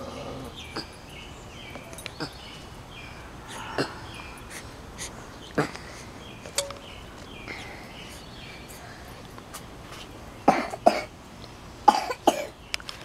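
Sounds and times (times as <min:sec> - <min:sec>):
person coughing: 0:10.5 - 0:11.1, 0:11.9 - 0:12.5.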